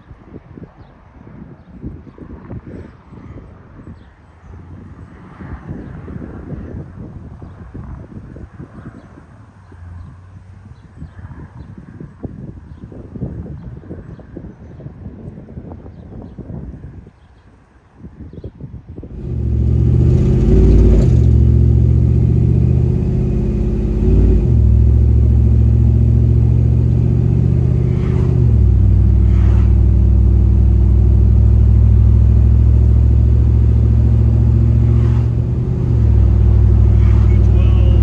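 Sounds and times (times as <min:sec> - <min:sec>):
engine drone inside vehicle cab: 0:19.2 - 0:38.0.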